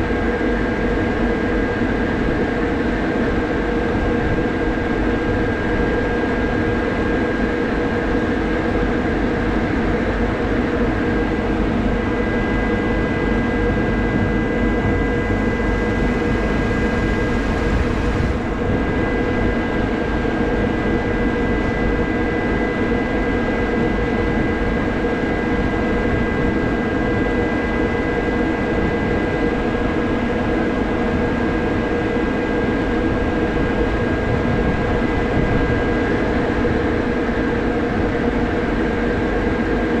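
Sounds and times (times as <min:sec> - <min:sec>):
high-pitched whine: 0:00.0 - 0:31.4
diesel engine running: 0:11.0 - 0:23.4.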